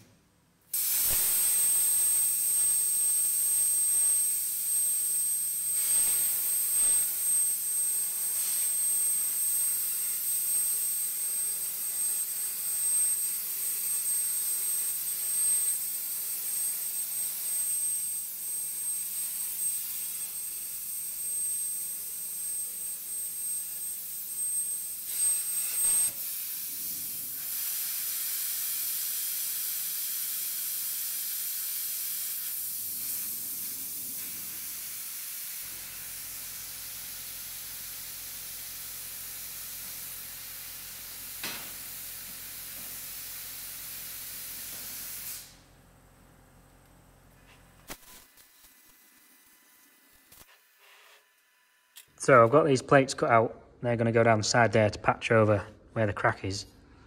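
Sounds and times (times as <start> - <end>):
plasma cutter arc hissing: 0.7 - 45.6, 47.8 - 51.2
thin high whine: 0.8 - 10.8.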